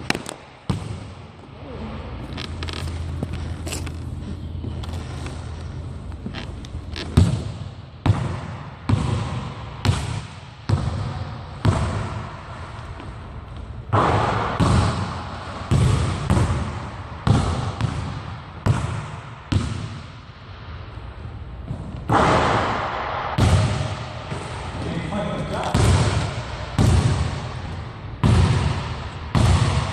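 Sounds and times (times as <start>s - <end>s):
basketball bouncing on hardwood: 15.7s - 20.0s, 25.6s - 27.4s, 28.2s - 29.9s.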